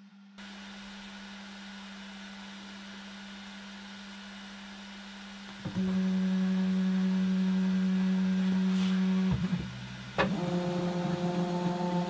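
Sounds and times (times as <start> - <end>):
stepper motors whining: 5.5 - 12.0.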